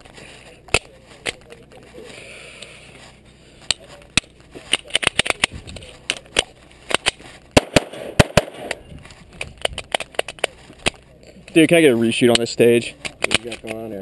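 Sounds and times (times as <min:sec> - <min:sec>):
pistol shots: 0:06.9 - 0:08.9.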